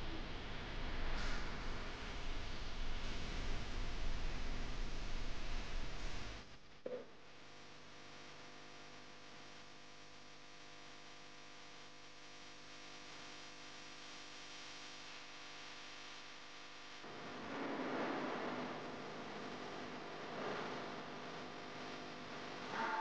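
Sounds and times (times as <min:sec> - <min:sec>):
faint steady hum: 0:00.0 - 0:23.0.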